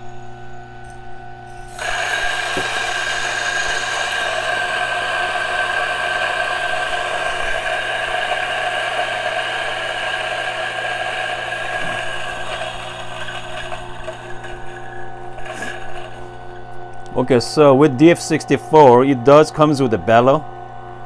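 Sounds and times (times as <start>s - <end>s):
coffee grinder grinding beans: 1.5s - 17.2s.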